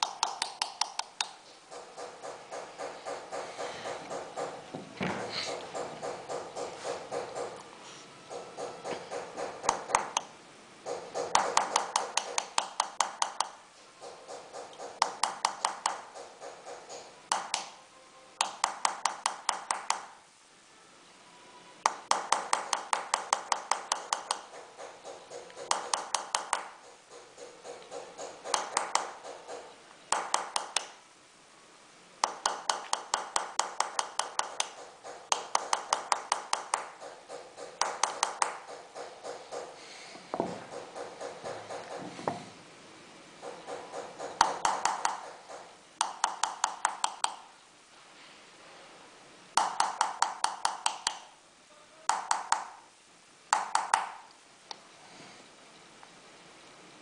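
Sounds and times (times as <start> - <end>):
hammer tapping metal tool: 0.0 - 7.7, 8.3 - 10.3, 10.9 - 17.8, 21.8 - 31.0, 32.2 - 42.4, 43.4 - 47.4, 49.6 - 51.2.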